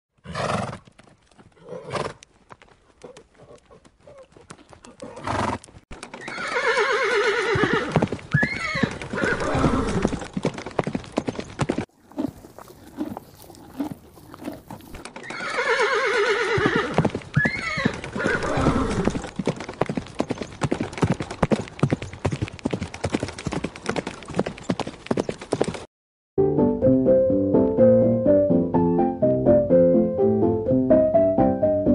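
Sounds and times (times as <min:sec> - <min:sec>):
horse whinnying: 0:00.2 - 0:00.8, 0:01.6 - 0:02.2, 0:04.8 - 0:10.3, 0:12.0 - 0:19.3
rapid horse hoofbeats: 0:00.2 - 0:25.9.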